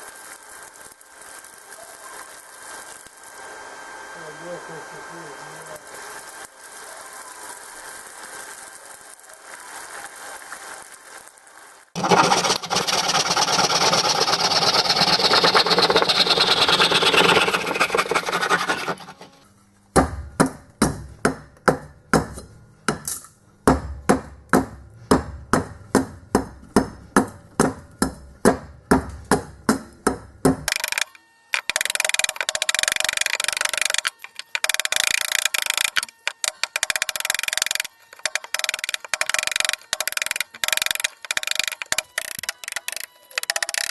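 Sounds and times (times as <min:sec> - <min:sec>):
hot steel hissing in water: 0:00.0 - 0:19.4, 0:31.6 - 0:43.9
hatchet chopping wood: 0:12.0 - 0:43.9.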